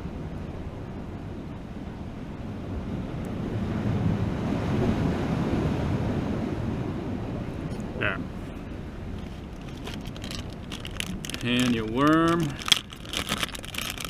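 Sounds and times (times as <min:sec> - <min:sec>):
ocean surf washing against rocks: 0:02.2 - 0:14.0.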